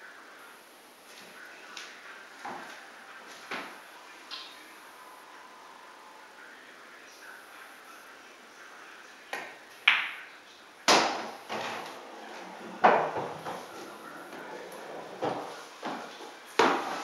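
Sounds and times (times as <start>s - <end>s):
pool balls clicking: 10.9s - 16.0s
pool balls knocking and dropping: 10.9s - 17.0s.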